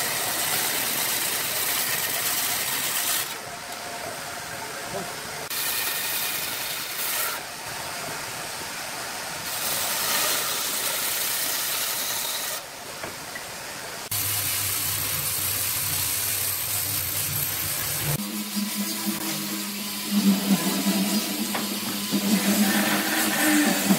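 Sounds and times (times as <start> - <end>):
bandsaw cutting wood: 0.0 - 3.4, 9.5 - 12.6, 17.3 - 23.9
woodworking machine motor humming: 14.2 - 23.9.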